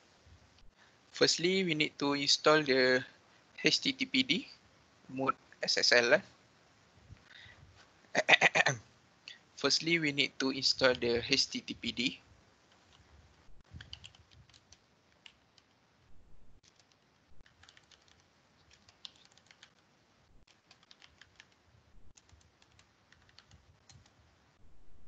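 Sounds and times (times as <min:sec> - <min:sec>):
keyboard typing: 0:13.6 - 0:15.8, 0:16.6 - 0:24.3.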